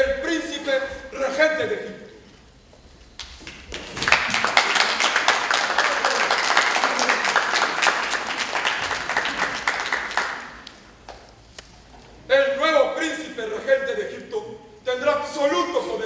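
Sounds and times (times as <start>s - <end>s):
crowd clapping: 3.2s - 11.3s.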